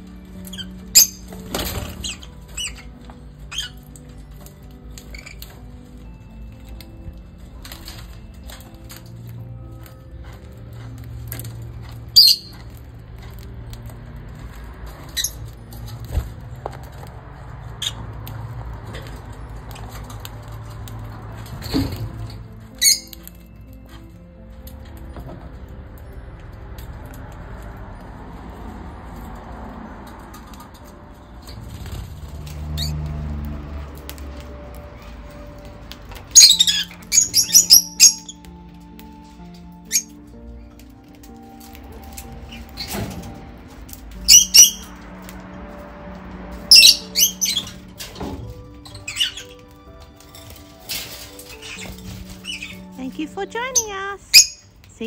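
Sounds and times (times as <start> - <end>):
shrill bird chirp: 0.3 - 6.3, 12.1 - 12.7, 22.6 - 23.5, 36.3 - 40.8, 44.1 - 45.0, 46.7 - 48.0, 48.8 - 49.9, 51.5 - 54.8.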